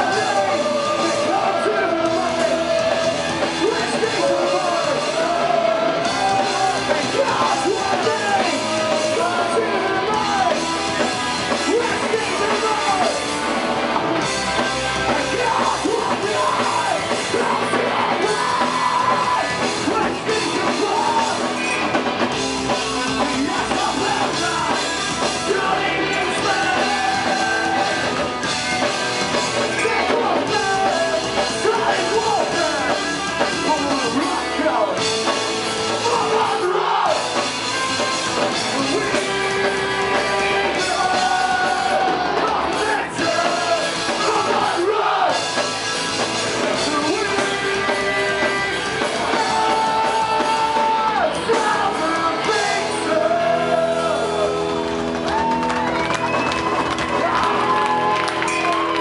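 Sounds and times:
shouted and sung vocals: 0:00.0 - 0:13.5, 0:14.1 - 0:35.1, 0:35.7 - 0:59.0
distorted electric guitars: 0:00.0 - 0:59.0
drum kit: 0:00.0 - 0:59.0.

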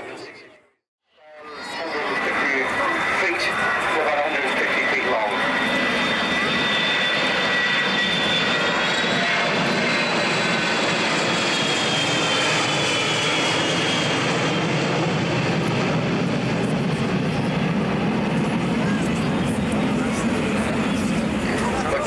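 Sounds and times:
jet aircraft flying past: 0:01.3 - 0:22.0.

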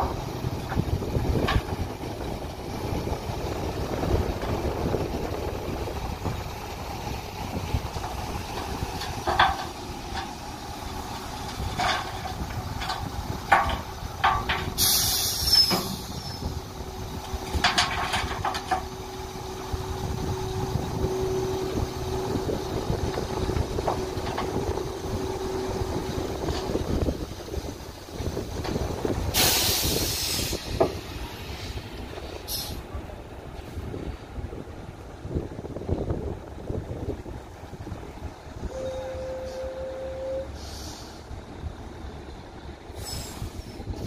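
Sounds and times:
truck engine running: 0:00.0 - 0:44.0
metallic knocks: 0:08.0 - 0:10.4, 0:11.1 - 0:14.8
air hissing bursts: 0:14.7 - 0:16.5, 0:29.3 - 0:30.8, 0:40.6 - 0:41.3.

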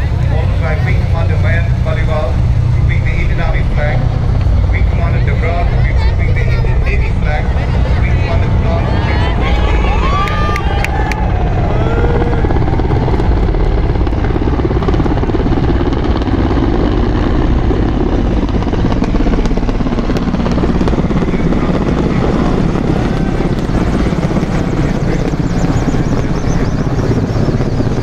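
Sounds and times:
helicopters flying overhead: 0:00.0 - 0:28.0.

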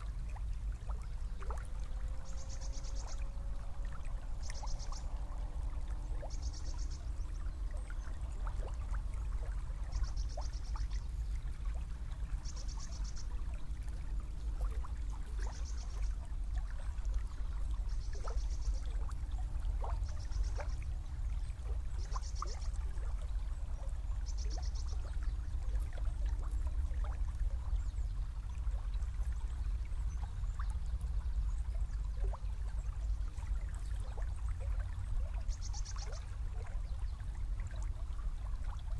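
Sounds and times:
river flowing: 0:00.0 - 0:27.8.

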